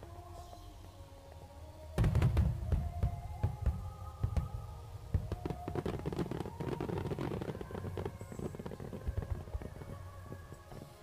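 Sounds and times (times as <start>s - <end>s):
background music with held notes: 0.0s - 11.0s
heavy firework booms: 2.0s - 6.6s
fireworks popping and crackling: 2.0s - 11.0s.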